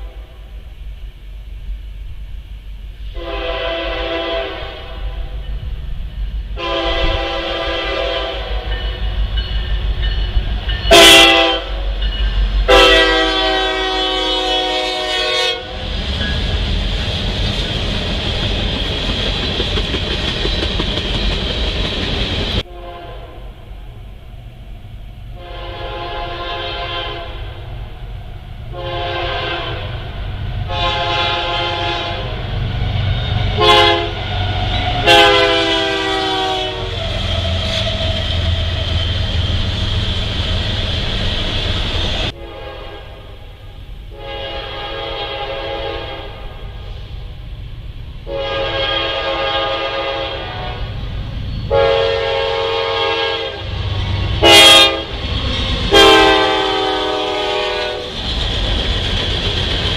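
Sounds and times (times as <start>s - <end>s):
locomotive horn blasts: 3.2s - 5.3s, 6.6s - 9.0s, 10.9s - 11.8s, 12.7s - 15.8s, 22.6s - 23.6s, 25.4s - 27.6s, 28.7s - 30.0s, 30.7s - 32.4s, 33.4s - 38.2s, 42.3s - 43.4s, 44.1s - 46.6s, 48.2s - 51.0s, 51.7s - 53.7s, 54.4s - 55.1s, 55.9s - 58.1s
train wheels clicking over rail joints: 15.8s - 22.7s, 36.8s - 42.4s, 53.7s - 59.9s.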